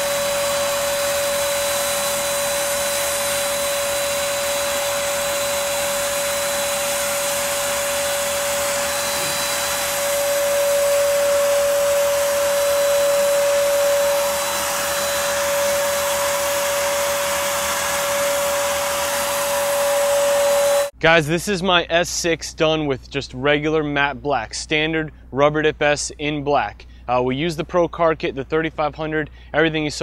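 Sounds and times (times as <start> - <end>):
hiss of spraying air: 0.0 - 20.9
paint sprayer motor whine: 0.0 - 21.0.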